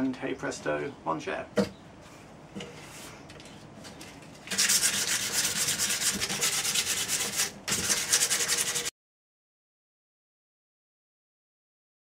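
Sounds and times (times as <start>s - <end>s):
hand sanding wood: 4.5s - 8.9s.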